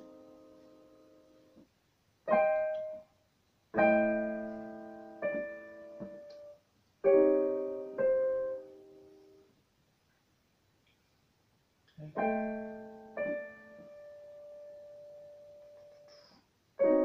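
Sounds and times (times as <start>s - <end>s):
digital piano chords: 0.0s - 1.6s, 2.3s - 3.1s, 3.7s - 9.5s, 12.0s - 16.2s, 16.8s - 17.0s.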